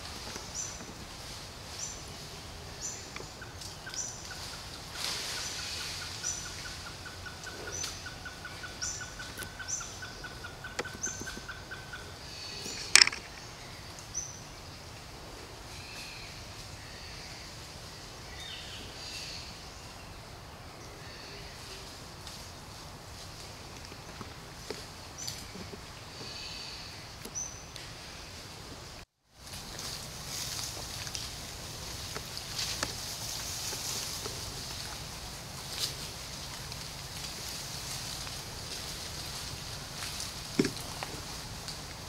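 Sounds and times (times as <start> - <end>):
birds chirping: 1.7 - 15.1.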